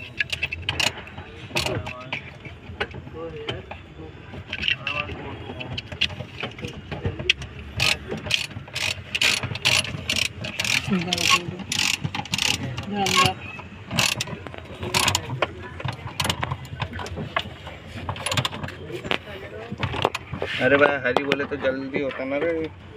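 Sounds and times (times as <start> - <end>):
ratchet wrench clicking: 0.0 - 1.0, 7.3 - 14.3.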